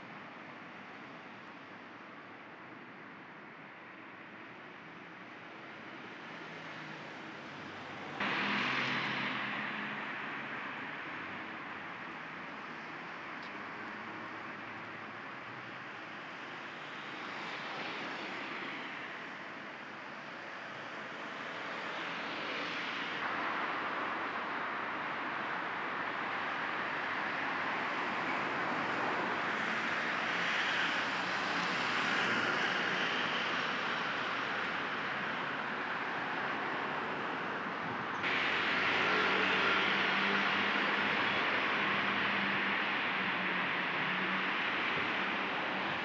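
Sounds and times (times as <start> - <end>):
vehicles passing hiss: 8.1 - 10.5, 38.2 - 46.0.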